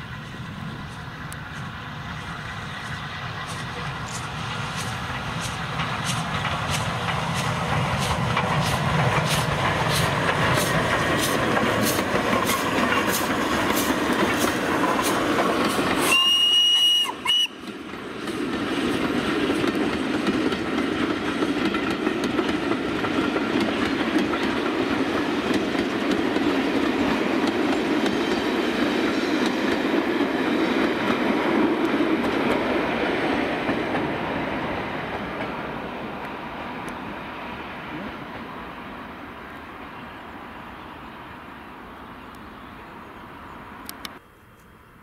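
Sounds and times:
train running on rails: 0:00.0 - 0:45.0
steam locomotive whistle: 0:15.9 - 0:17.7.

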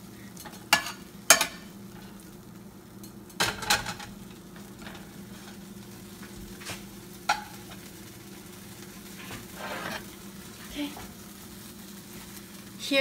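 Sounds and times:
spatula scraping a frying pan: 0:08.8 - 0:11.2.

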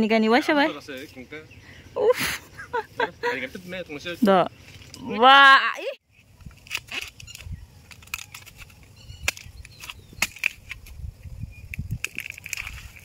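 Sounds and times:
dry bamboo crackling and snapping: 0:06.3 - 0:13.0.

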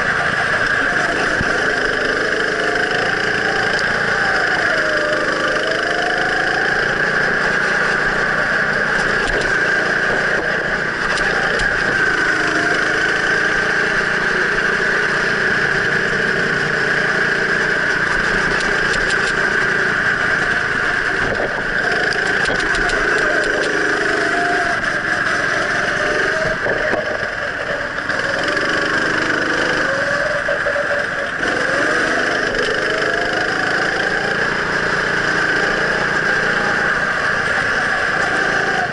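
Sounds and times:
go-kart engine revving: 0:00.0 - 0:38.9.

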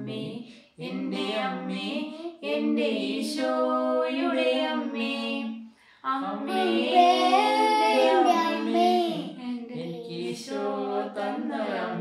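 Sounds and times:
woman and child singing a hymn: 0:00.0 - 0:12.0.

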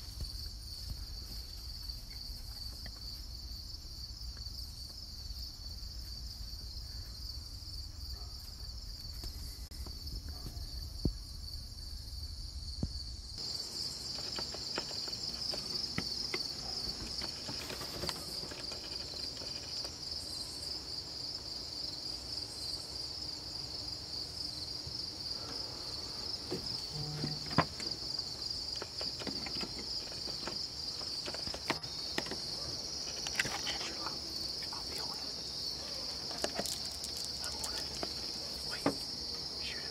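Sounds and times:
insects trilling: 0:00.0 - 0:39.9
faint clicks and rustles: 0:13.8 - 0:20.2, 0:26.5 - 0:35.2.

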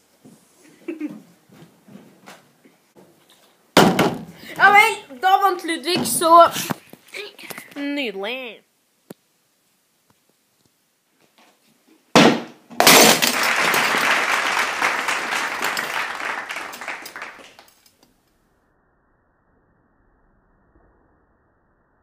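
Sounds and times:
glass shattering: 0:12.8 - 0:14.0.

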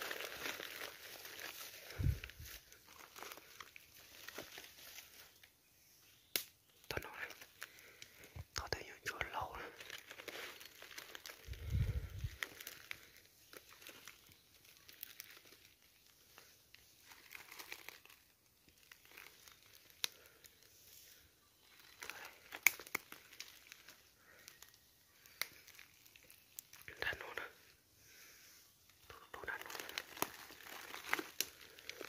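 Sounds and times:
footsteps on dry leaves and twigs: 0:00.0 - 0:05.5, 0:09.5 - 0:26.8, 0:29.5 - 0:32.0.

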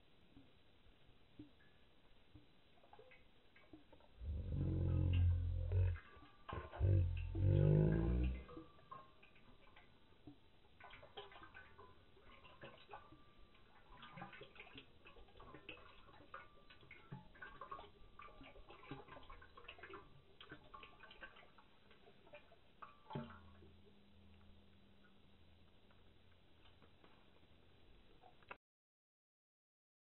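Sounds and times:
low hum: 0:04.2 - 0:09.0.

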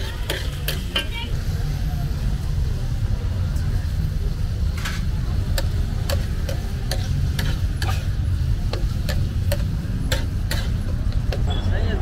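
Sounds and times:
metal spatula tapping griddle: 0:00.0 - 0:01.2, 0:05.5 - 0:11.6
beans frying: 0:00.0 - 0:11.6.

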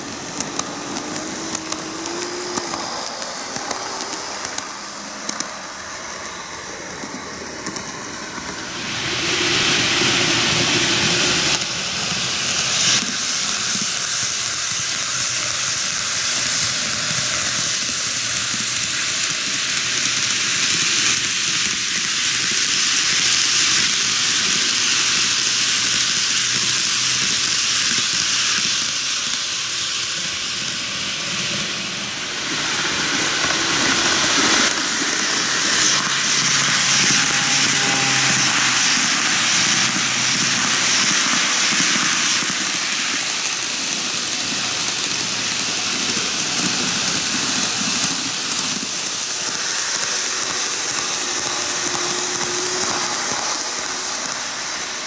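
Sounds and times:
model trains running on rails: 0:00.0 - 0:55.0.

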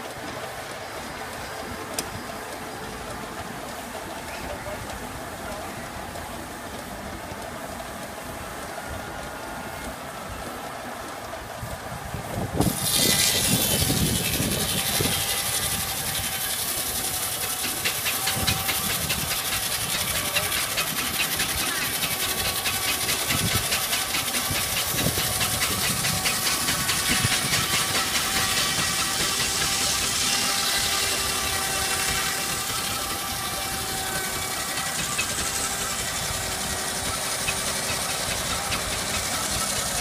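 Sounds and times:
circular saw running: 0:12.4 - 0:40.0
saw blade cutting log: 0:12.6 - 0:40.0.

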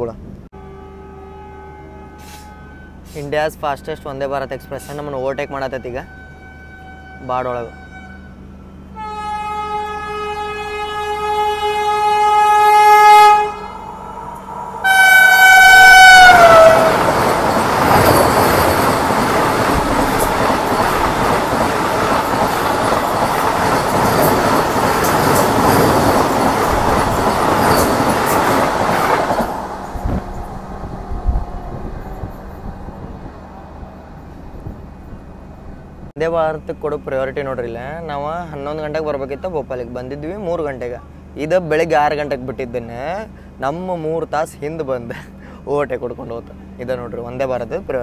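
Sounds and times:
train horn blast: 0:00.6 - 0:03.5, 0:04.8 - 0:32.8
train coaches rushing past: 0:14.0 - 0:35.9.

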